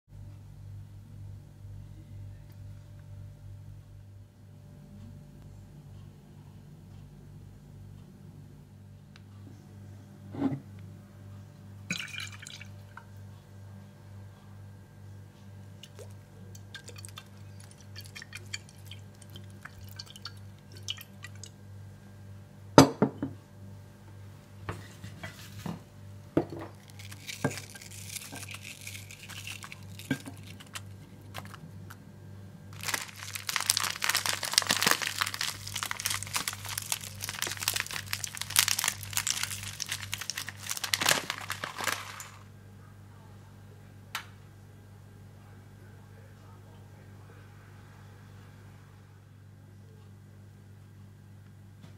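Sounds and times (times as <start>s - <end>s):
crunchy rustling of cabbage: 26.7s - 32.0s, 32.7s - 42.5s.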